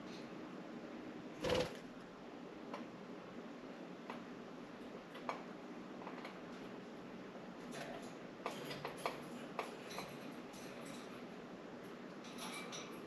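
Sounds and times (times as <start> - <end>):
budgies clicking on window blinds: 1.4 - 3.0, 7.6 - 13.0.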